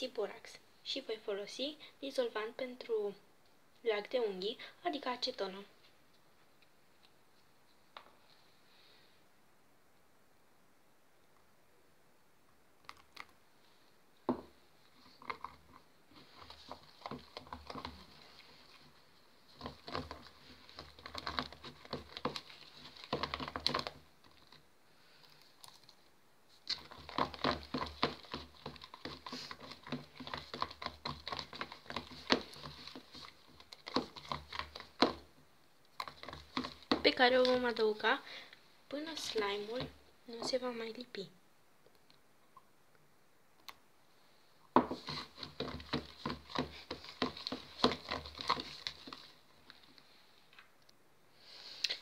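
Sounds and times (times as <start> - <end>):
slime stirred in plastic bowl: 14.5 - 38.3, 38.9 - 41.0, 44.8 - 50.2.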